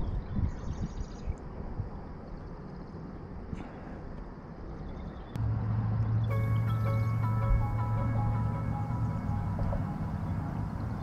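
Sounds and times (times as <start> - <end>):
wind rumble on microphone: 0.0 - 3.6
steady low hum: 5.4 - 11.0
background music of held notes: 6.3 - 11.0.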